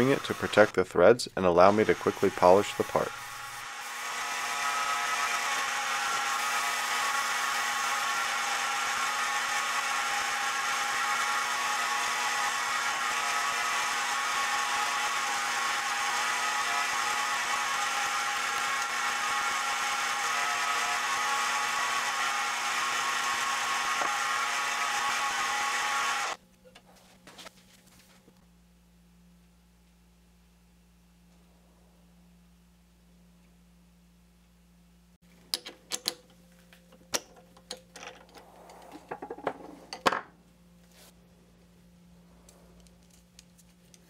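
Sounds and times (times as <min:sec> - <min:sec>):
lathe whirring: 0:00.0 - 0:00.7, 0:01.6 - 0:26.4
rod being sanded: 0:01.7 - 0:26.4.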